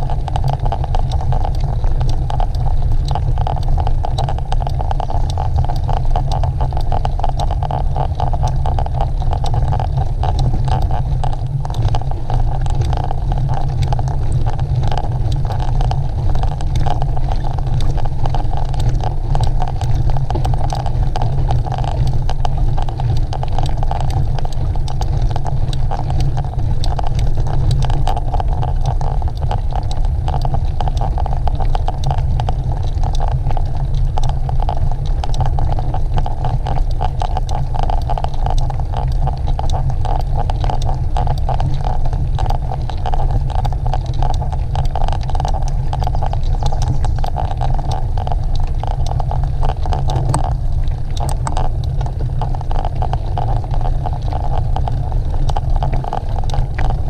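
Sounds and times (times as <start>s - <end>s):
wind on microphone: 48.8s - 52.4s.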